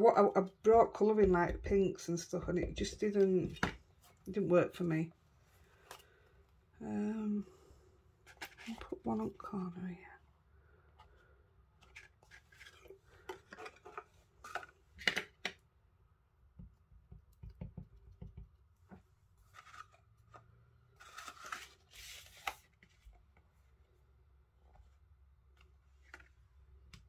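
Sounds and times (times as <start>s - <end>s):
paper rustling: 19.4s - 23.2s.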